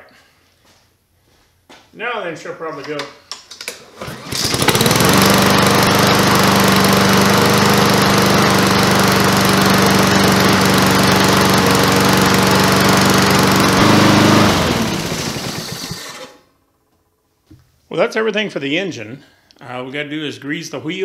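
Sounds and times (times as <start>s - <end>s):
lawn mower engine running: 4.0s - 16.5s.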